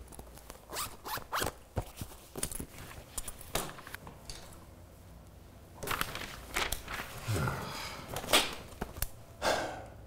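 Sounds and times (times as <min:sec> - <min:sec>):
paper folder rustling: 0:05.8 - 0:07.3.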